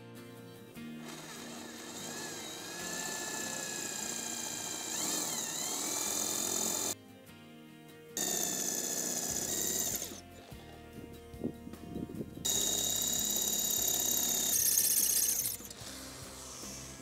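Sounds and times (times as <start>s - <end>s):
electric drill boring through tile: 1.0s - 7.0s, 8.2s - 10.8s, 12.5s - 17.0s.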